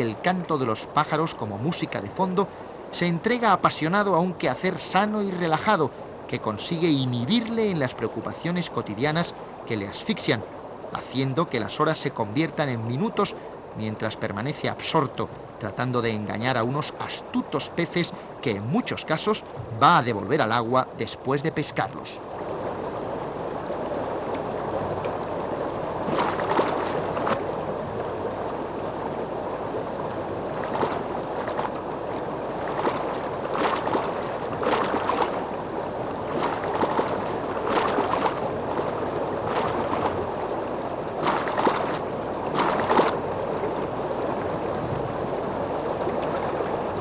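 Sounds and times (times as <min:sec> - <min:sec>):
river water running: 0:00.0 - 0:47.0
splashes in water: 0:26.0 - 0:27.5, 0:30.5 - 0:43.3.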